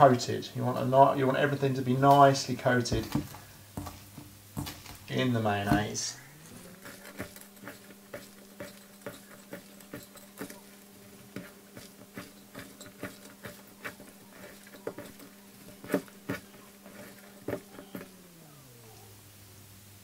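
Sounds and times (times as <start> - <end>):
steady low hum: 0.0 - 20.0
hands mixing wet salad: 1.0 - 18.2.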